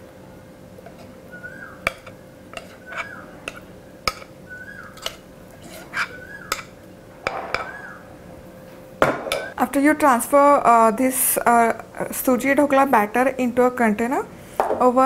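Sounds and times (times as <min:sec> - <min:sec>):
metal spoon scraping glass bowl: 0:00.9 - 0:01.2, 0:01.8 - 0:06.7.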